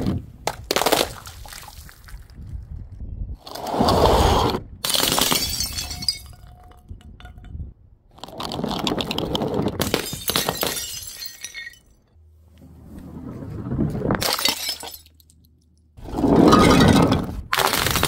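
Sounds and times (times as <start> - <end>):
glass bottles shattering: 4.8 - 6.8, 9.8 - 12.0, 14.2 - 15.4, 16.4 - 18.0.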